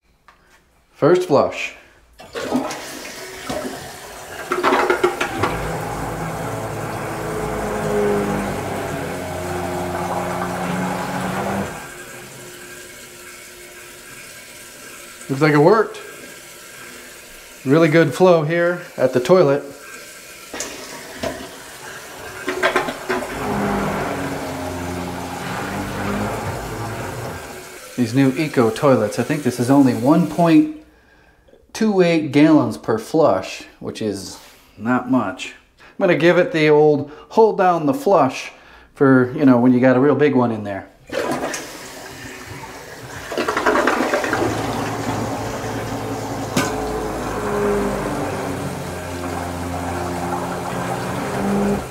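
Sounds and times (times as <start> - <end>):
toilet flushing: 2.2 - 30.8, 41.0 - 51.9
grinder pump motor hum: 3.5 - 14.4, 21.8 - 28.0, 41.1 - 51.9.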